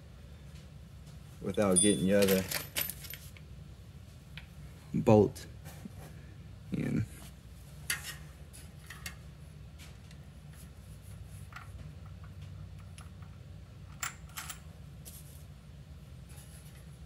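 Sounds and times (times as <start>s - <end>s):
low steady hum: 0.0s - 17.0s
metallic clicks of bolts handled: 1.6s - 3.2s.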